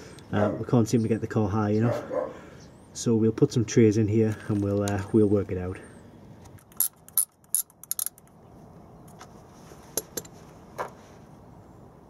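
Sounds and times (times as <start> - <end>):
metal wrench clicks: 6.6 - 8.3.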